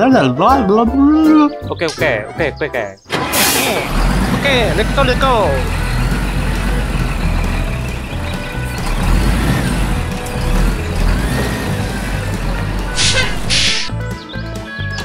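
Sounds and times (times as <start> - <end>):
background music: 0.0 - 15.0
heavy vehicle engine rumbling: 3.1 - 14.1.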